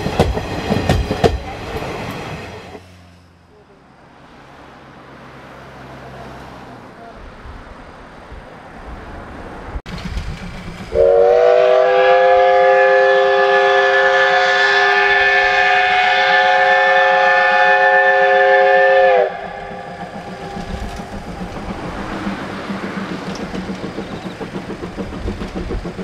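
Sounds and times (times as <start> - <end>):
train running noise: 0.0 - 26.0
steam whistle blast: 10.9 - 20.9.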